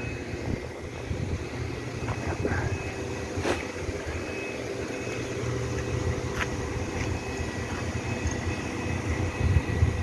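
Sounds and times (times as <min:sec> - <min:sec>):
machinery hum: 0:00.0 - 0:10.0
wind rumble on microphone: 0:00.3 - 0:02.9, 0:09.2 - 0:10.0.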